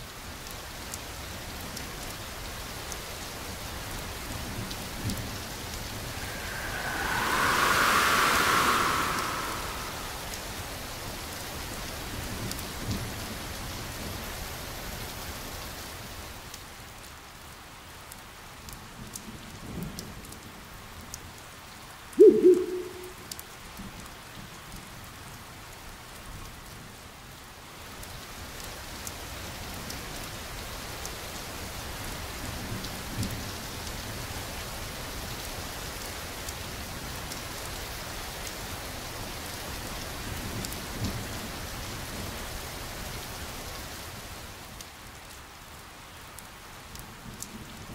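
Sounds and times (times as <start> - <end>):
steady rain: 0.0 - 47.9
low thunder rumbles: 5.5 - 11.1.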